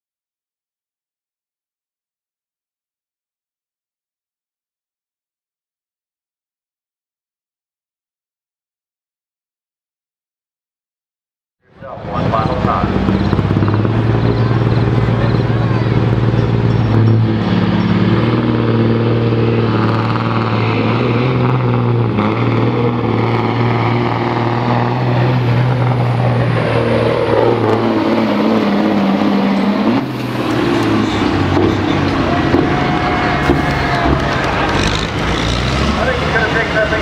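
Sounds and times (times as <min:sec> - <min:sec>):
diesel truck engine running hard: 0:11.7 - 0:37.0.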